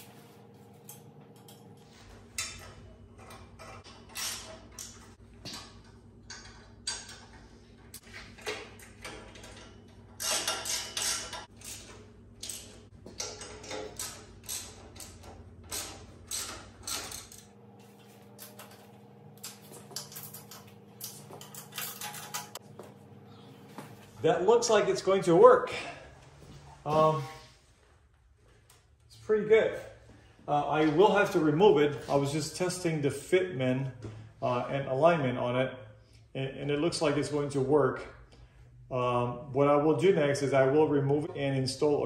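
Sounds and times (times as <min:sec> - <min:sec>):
metal clinks and scrapes: 0:19.5 - 0:22.6.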